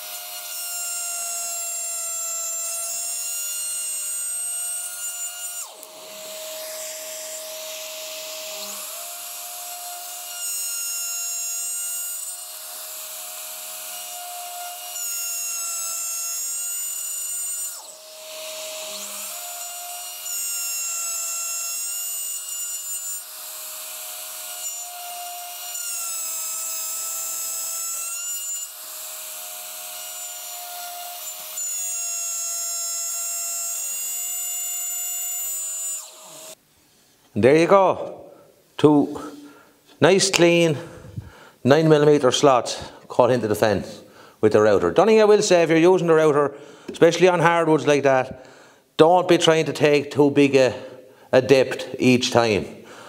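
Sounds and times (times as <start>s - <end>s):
router motor whining: 0.0s - 36.6s.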